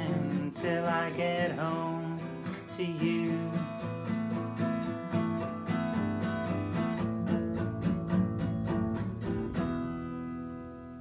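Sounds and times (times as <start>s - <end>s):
acoustic guitar strumming: 0.0s - 11.0s.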